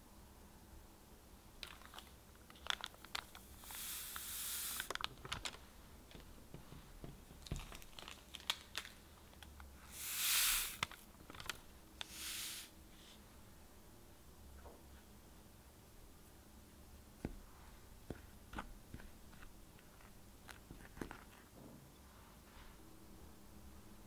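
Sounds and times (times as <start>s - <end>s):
granules pouring off paper: 1.6s - 5.6s, 9.9s - 12.7s
paper sheets crinkling: 7.4s - 9.5s.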